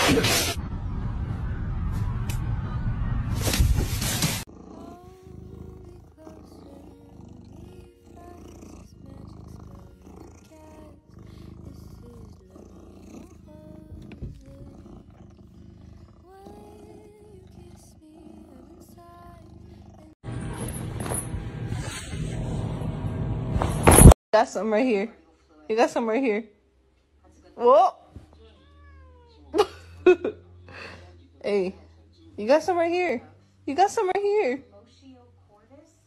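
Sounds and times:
loud burst of noise: 0.0s - 4.4s
cat purring: 4.4s - 20.2s.

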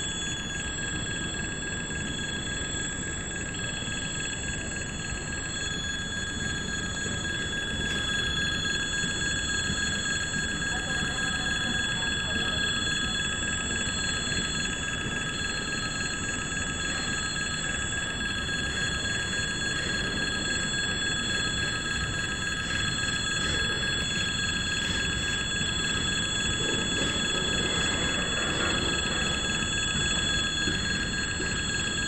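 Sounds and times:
freight train rumbling on rails: 16.8s - 32.0s.

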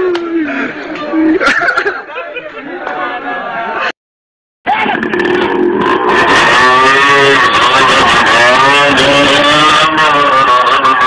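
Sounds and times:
motorcycle engine revving: 4.7s - 11.0s.

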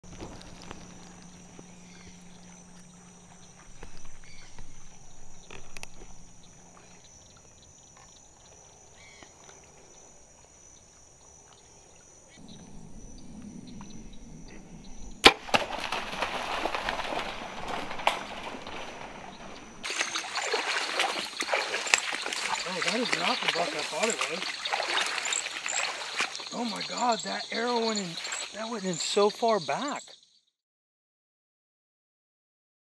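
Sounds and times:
deer splashing through water: 15.2s - 29.3s.

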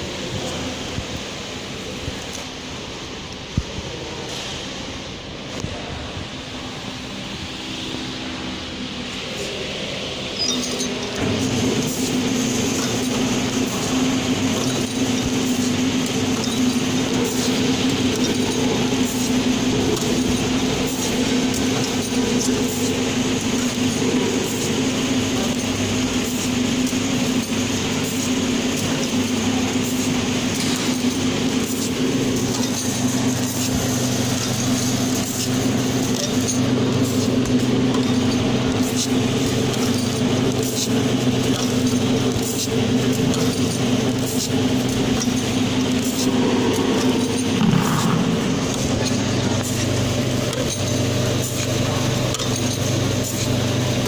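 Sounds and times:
packing machine humming and ticking: 0.0s - 54.0s.

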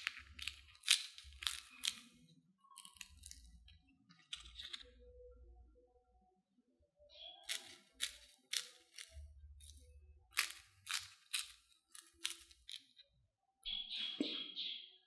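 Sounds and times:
crunching fried potato sticks: 0.0s - 3.7s, 7.4s - 12.9s.

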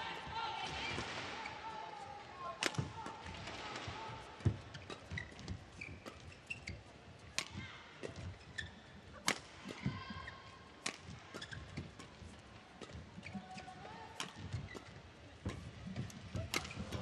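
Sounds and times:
rackets hitting shuttlecock: 2.6s - 3.4s, 7.3s - 8.3s, 9.2s - 9.9s, 10.8s - 13.4s, 14.2s - 17.0s
shoes squeaking on court: 4.4s - 7.0s, 8.0s - 17.0s.

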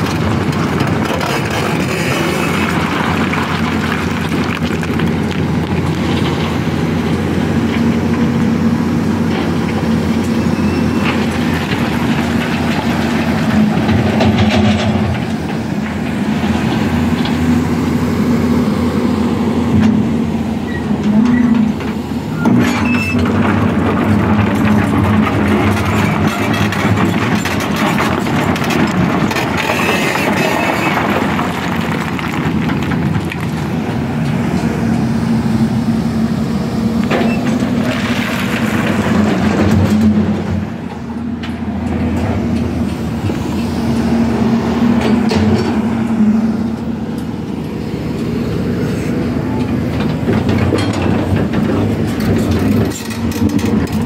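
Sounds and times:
diesel engine drone: 0.0s - 54.0s
stone crusher working: 22.5s - 33.8s.

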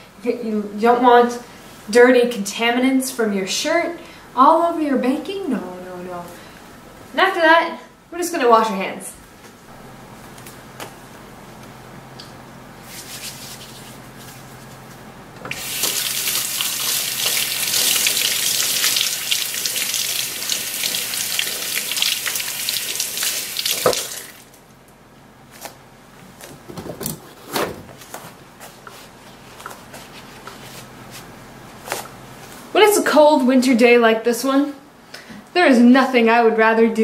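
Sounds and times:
paper towel rustling: 12.8s - 17.8s, 27.2s - 32.7s
faucet running over hands: 15.5s - 24.5s.

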